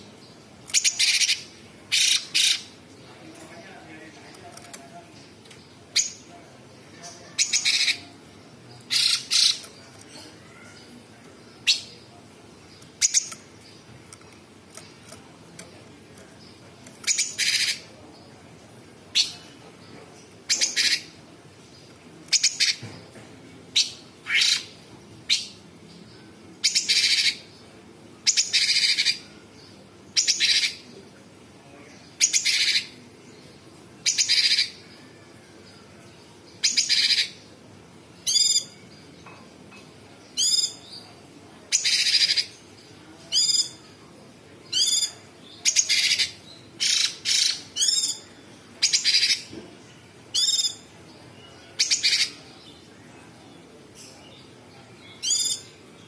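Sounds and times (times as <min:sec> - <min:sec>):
bird singing harsh and whistled notes: 0:00.7 - 0:02.7, 0:08.9 - 0:09.7, 0:34.0 - 0:34.8, 0:36.6 - 0:37.4, 0:38.2 - 0:38.8, 0:40.4 - 0:41.0, 0:41.7 - 0:42.5, 0:43.3 - 0:43.8, 0:44.7 - 0:48.2, 0:48.8 - 0:49.5, 0:50.3 - 0:52.8, 0:55.1 - 0:55.8.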